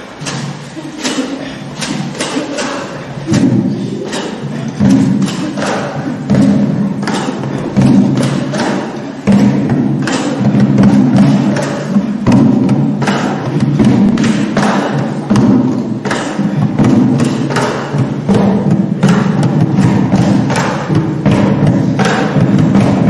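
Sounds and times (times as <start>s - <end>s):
slow heavy drum hits: 3.2s - 23.0s.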